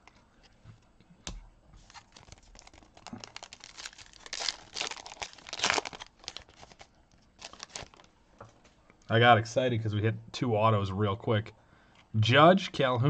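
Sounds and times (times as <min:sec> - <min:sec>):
wrapper crinkling: 0:01.8 - 0:08.6
foil pack tearing: 0:01.9 - 0:08.1.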